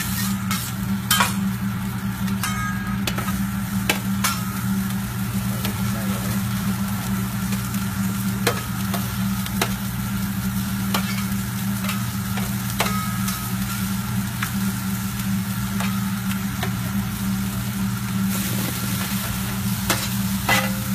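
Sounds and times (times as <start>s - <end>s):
food sizzling on griddle: 0.0s - 20.9s
steady low hum: 0.0s - 20.9s.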